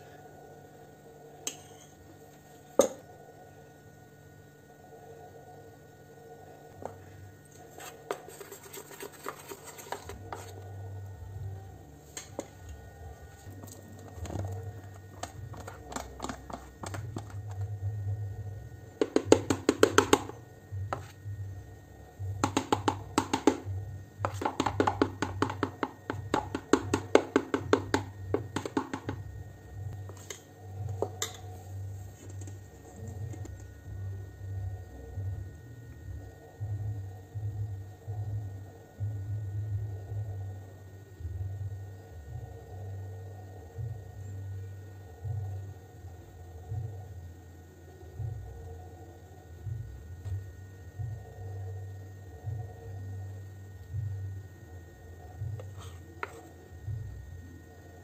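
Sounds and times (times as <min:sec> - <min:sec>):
spoon scraping metal bowl: 0:07.7 - 0:10.6, 0:13.6 - 0:17.6.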